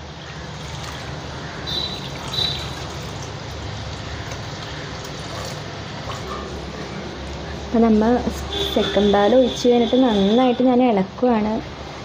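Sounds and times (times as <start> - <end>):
liquid being poured into a pot: 0.5 - 6.1.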